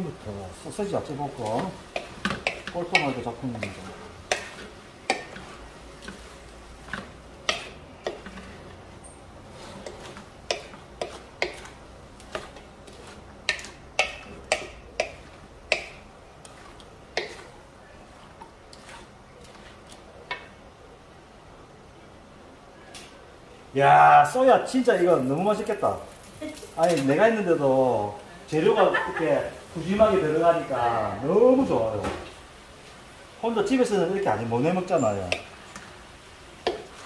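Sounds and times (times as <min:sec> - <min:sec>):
wooden spatula knocking on wok: 0:01.5 - 0:06.2, 0:06.9 - 0:08.4, 0:09.8 - 0:12.7, 0:13.4 - 0:16.1, 0:17.1 - 0:17.4, 0:36.6 - 0:36.9.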